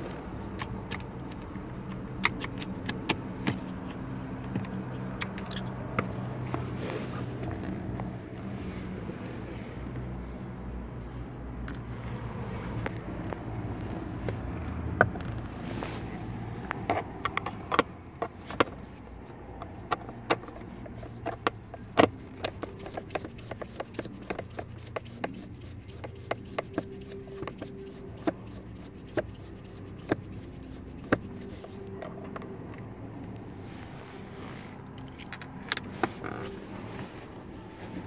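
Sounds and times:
screwdriver clicking and scraping: 0.4s - 6.2s.

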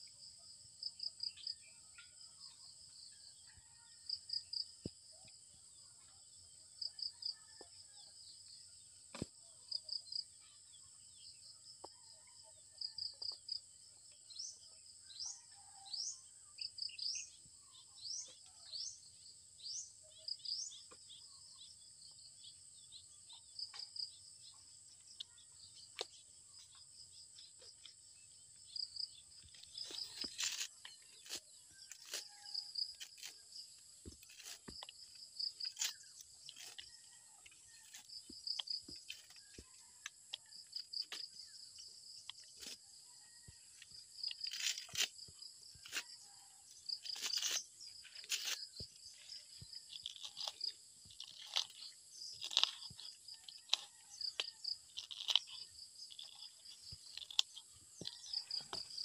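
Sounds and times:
insects chirring: 43.4s - 59.0s
hands handling food: 47.0s - 59.0s.

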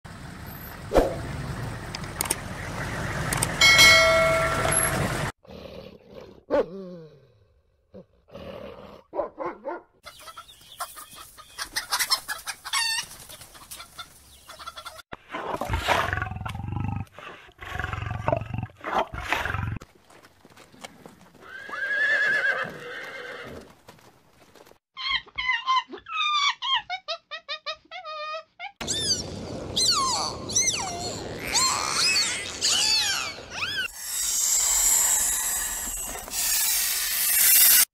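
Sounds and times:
animal calls: 25.0s - 37.3s.

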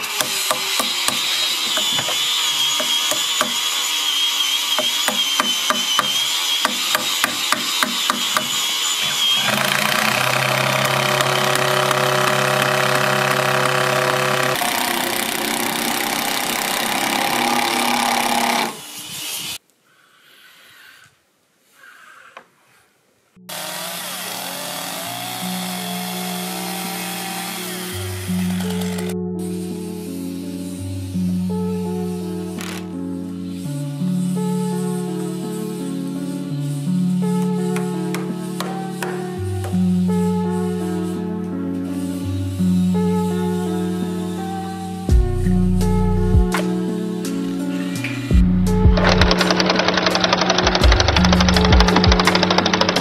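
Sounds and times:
hammer striking chisel into wood: 0.0s - 2.2s, 2.8s - 3.6s, 4.7s - 8.6s
background music: 4.7s - 18.8s, 23.5s - 53.0s.

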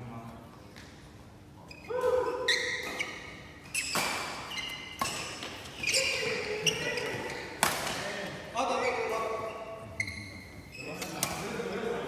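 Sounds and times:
shoes squeaking on court: 1.5s - 11.5s
racket striking shuttlecock: 7.6s - 8.0s.

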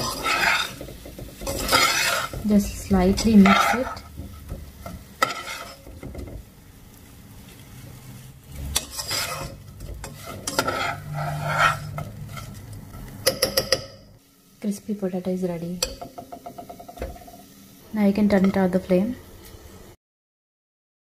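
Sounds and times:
spoon scraping pan: 0.0s - 6.5s, 7.4s - 14.1s, 15.8s - 17.5s, 18.2s - 18.8s
oil sizzling: 0.0s - 20.0s.

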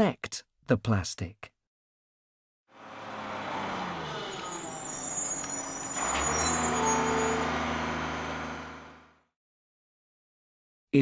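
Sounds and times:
truck engine running: 2.8s - 9.2s.

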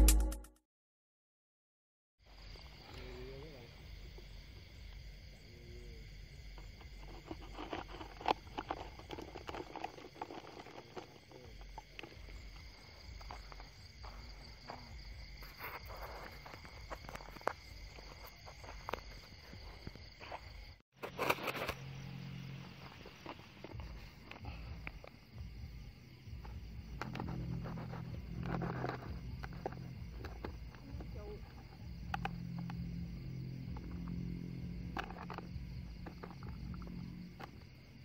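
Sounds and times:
night insects chirring: 2.2s - 38.0s
footsteps on dirt path: 11.6s - 21.8s.

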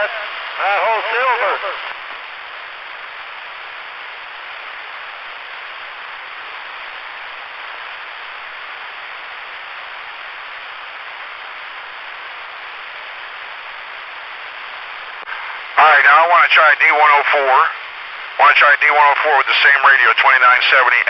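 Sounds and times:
radio static hiss: 0.0s - 21.0s.

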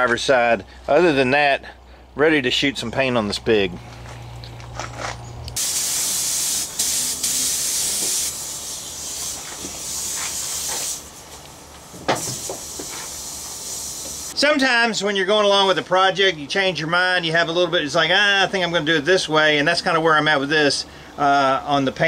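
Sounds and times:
paint spray gun hissing: 5.6s - 14.4s.

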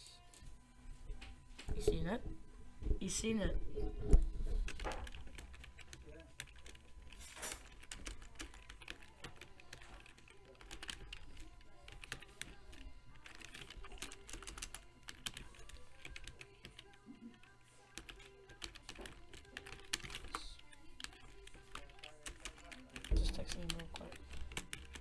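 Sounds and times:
typing on computer keyboard: 4.6s - 25.0s.

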